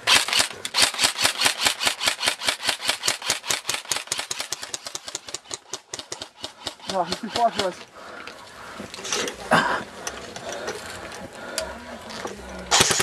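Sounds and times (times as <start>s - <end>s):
airsoft rifle rapid fire: 0.0s - 7.7s, 12.7s - 13.0s.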